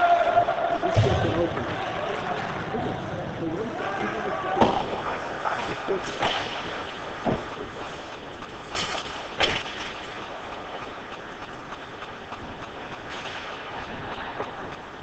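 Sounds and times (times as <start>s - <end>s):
skates hissing on ice: 5.0s - 15.0s.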